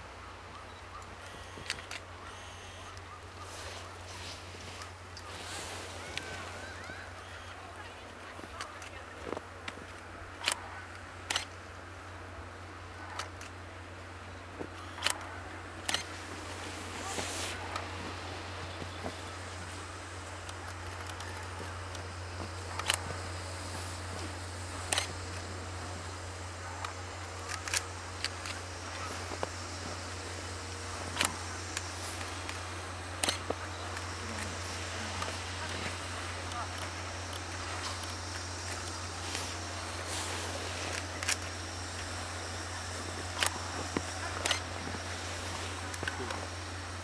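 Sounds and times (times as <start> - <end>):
steam locomotive hum and hiss: 0.0 - 47.0
camera shutters clicking: 0.7 - 3.0, 11.3 - 11.6, 14.8 - 15.2, 15.8 - 16.1, 20.4 - 23.2, 24.2 - 25.5, 26.8 - 29.5, 31.1 - 39.6, 40.9 - 45.0
camera shutter clicks: 11.3 - 11.6, 14.8 - 15.2, 15.8 - 16.1, 22.7 - 23.2, 24.9 - 25.4, 33.2 - 39.5, 43.2 - 44.7.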